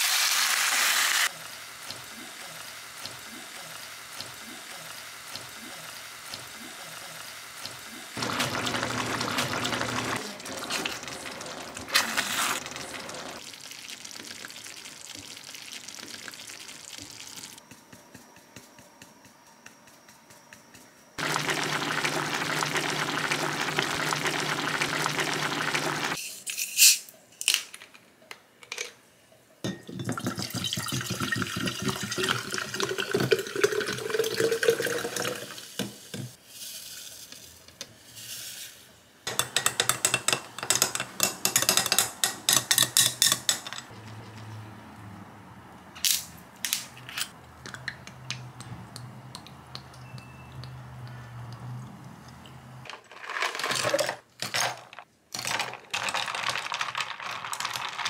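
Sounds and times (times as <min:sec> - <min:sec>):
fizzing: 0:08.2 - 0:17.6, 0:21.2 - 0:26.2
stew bubbling: 0:08.2 - 0:17.6, 0:21.2 - 0:26.2
water pouring into glass pitcher: 0:08.2 - 0:17.6, 0:21.2 - 0:26.2, 0:29.8 - 0:35.6.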